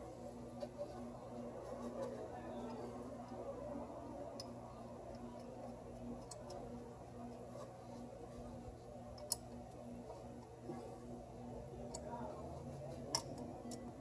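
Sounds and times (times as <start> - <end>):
steady low hum: 0.0 - 14.0
metallic clicks of small parts: 4.3 - 6.7, 9.1 - 9.8, 11.8 - 12.1, 13.1 - 14.0.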